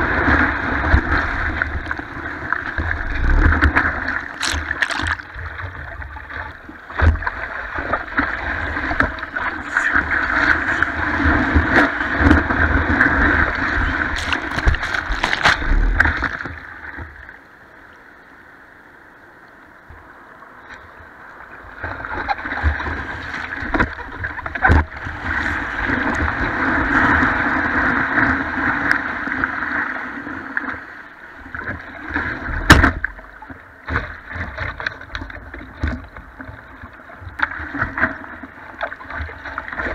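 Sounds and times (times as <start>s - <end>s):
surf washing against surfboard: 0.0s - 5.8s, 6.9s - 16.6s.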